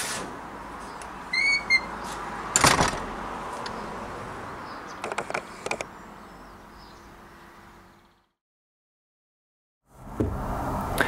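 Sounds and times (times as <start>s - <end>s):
gate hinges squeaking: 1.3s - 2.0s
metal gate clanging shut: 2.6s - 3.1s.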